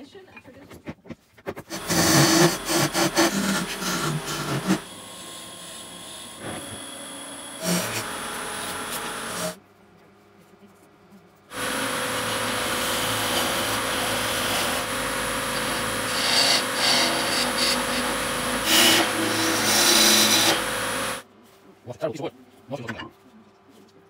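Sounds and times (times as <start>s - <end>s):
turning tool scraping wood: 0.7s - 4.9s, 7.5s - 9.6s, 11.5s - 21.2s
wood lathe running: 1.6s - 9.6s, 11.5s - 21.2s.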